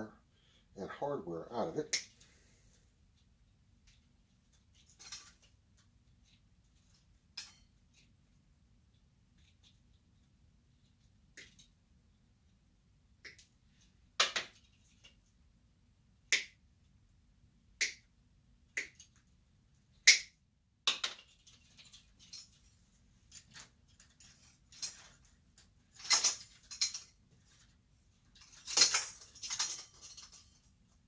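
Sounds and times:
metal parts rattling and clinking: 3.9s - 5.6s, 6.2s - 8.1s, 21.0s - 30.9s.

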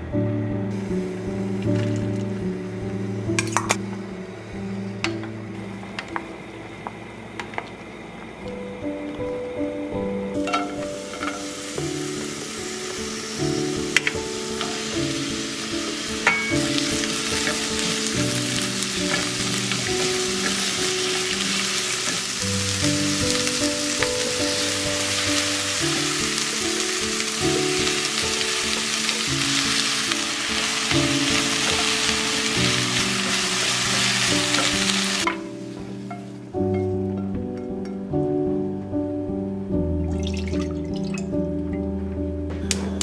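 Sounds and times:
soft background music: 0.0s - 43.0s
vegetables sizzling in a pan: 0.7s - 3.8s, 10.0s - 36.5s.

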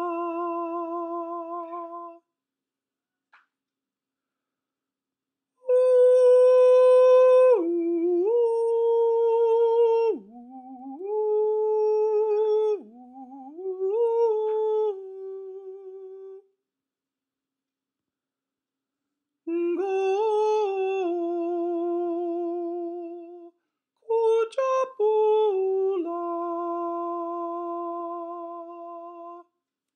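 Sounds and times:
person singing sustained oo: 0.0s - 2.2s, 5.6s - 16.5s, 24.1s - 29.5s.

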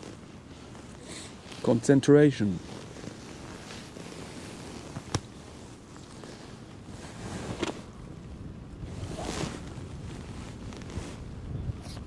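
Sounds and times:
wind rumbling on microphone: 2.6s - 12.0s.

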